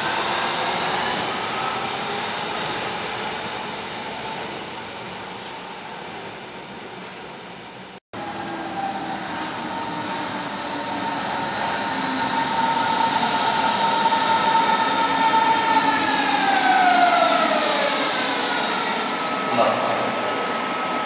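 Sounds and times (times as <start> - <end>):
electric train pulling in: 8.2 - 21.0.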